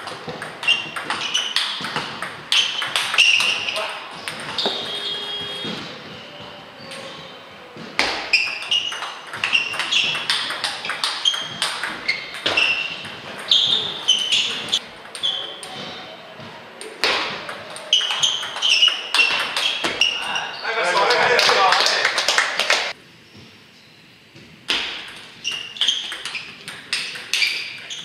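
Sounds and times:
table tennis balls clicking: 0.0s - 5.0s, 7.9s - 15.8s, 16.8s - 20.4s, 24.7s - 28.0s.

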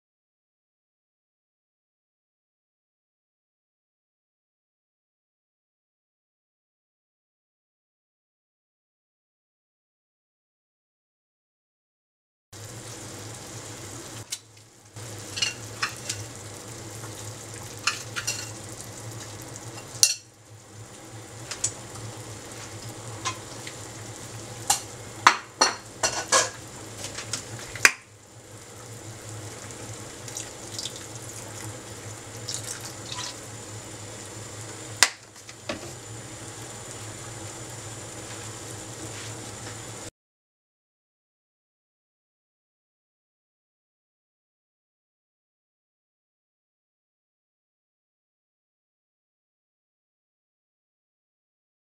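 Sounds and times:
saucepan bubbling hiss: 12.6s - 40.1s.

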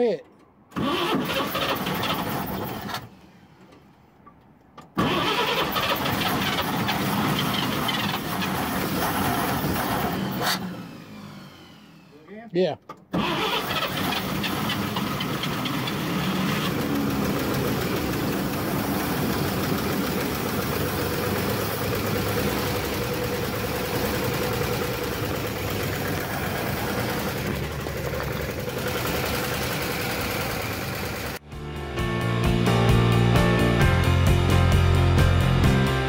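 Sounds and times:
pickup engine running: 13.1s - 31.4s.

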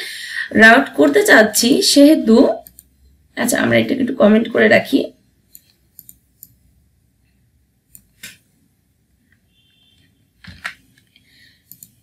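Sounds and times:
computer mouse and keyboard clicks: 5.5s - 6.6s, 10.0s - 12.0s.

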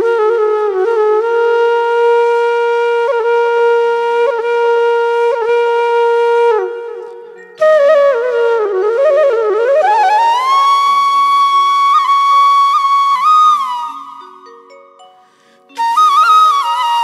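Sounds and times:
bamboo flute note with grace notes: 0.0s - 14.6s, 15.7s - 17.0s.

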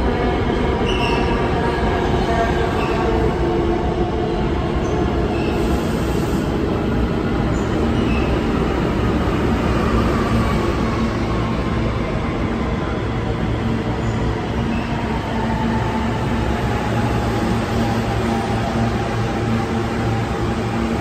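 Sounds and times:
subway train wheels rumbling on rails: 0.0s - 21.0s.

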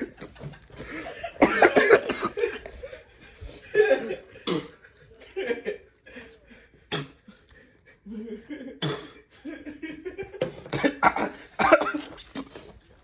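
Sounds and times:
laughter: 0.0s - 11.1s
man coughing: 1.3s - 2.6s, 10.7s - 12.5s.

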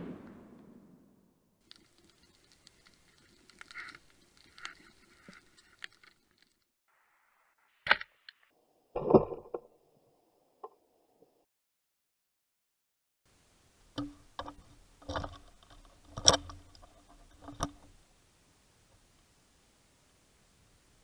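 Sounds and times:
loud thump: 0.0s - 1.1s
faint underwater clicking: 1.6s - 6.6s.

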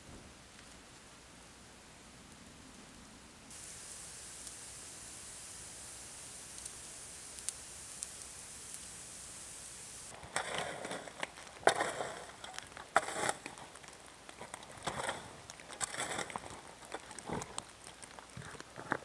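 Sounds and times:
steady hiss: 0.0s - 19.0s
footsteps crunching snow: 10.1s - 13.8s, 14.4s - 17.4s.

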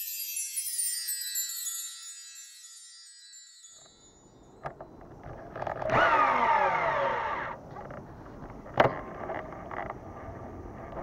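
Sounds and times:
fishing reel spool whine: 4.2s - 7.6s
reel winding noise: 5.2s - 7.6s.

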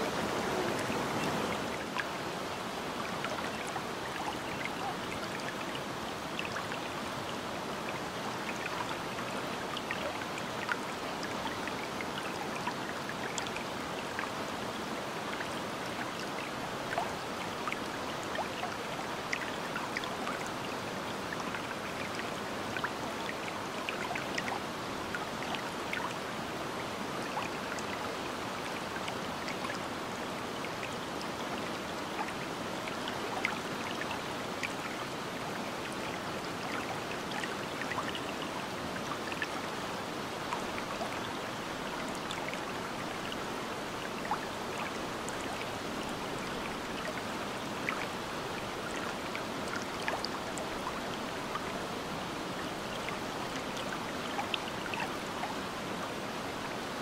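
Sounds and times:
waterfall rushing: 0.0s - 2.7s
water splashes and drips: 3.0s - 56.0s.

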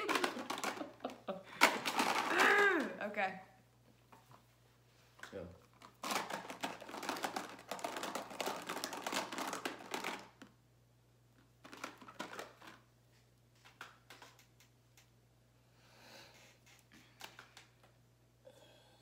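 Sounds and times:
plastic tubes clicking and rattling: 0.0s - 3.0s, 5.2s - 10.6s, 11.6s - 15.1s, 16.4s - 18.0s.

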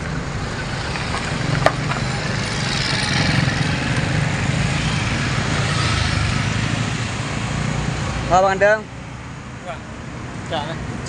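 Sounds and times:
small engine running: 0.1s - 6.9s.

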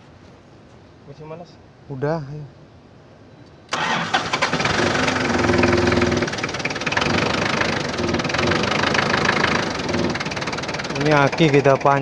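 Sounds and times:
diesel engine idling with clatter: 3.7s - 12.0s.

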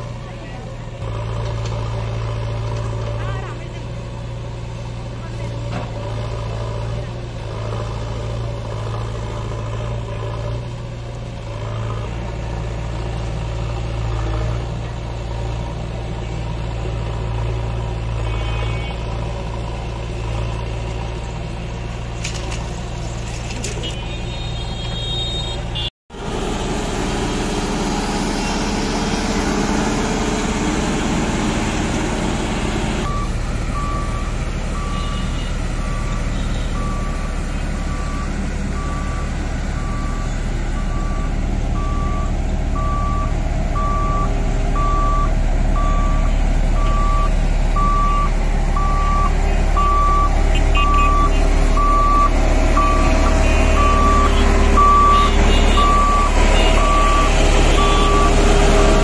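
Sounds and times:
motor grader engine running: 0.0s - 59.0s
road roller diesel engine: 0.0s - 59.0s
reversing alarm beeping: 33.0s - 59.0s.

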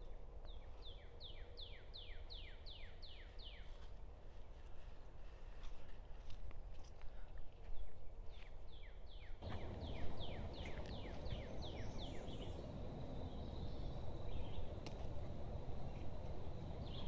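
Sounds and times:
songbird whistling: 9.4s - 14.7s
low rumbling noise: 9.4s - 17.0s.

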